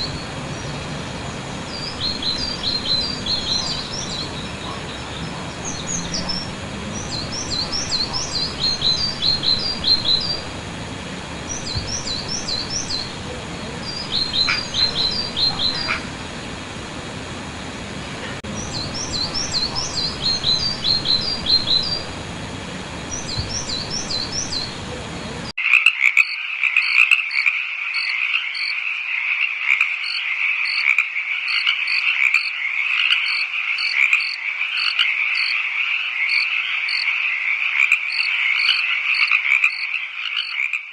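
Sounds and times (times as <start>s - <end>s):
frogs calling with pulsing trill: 0.0s - 17.8s, 18.5s - 40.9s
outdoor hiss: 0.0s - 25.6s
songbird chirping: 0.0s - 25.6s.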